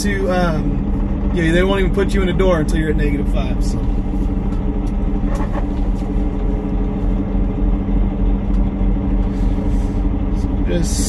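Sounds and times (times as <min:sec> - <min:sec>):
truck diesel engine running: 0:00.0 - 0:11.0.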